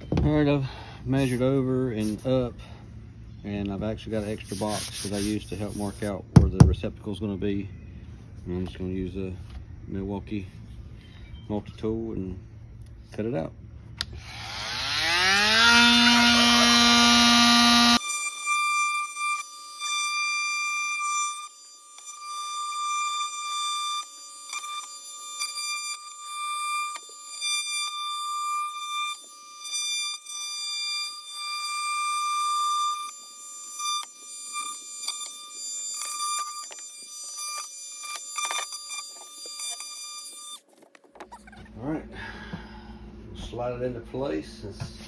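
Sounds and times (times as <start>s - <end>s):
oscillating multi-tool buzzing whine: 14.0s - 42.0s.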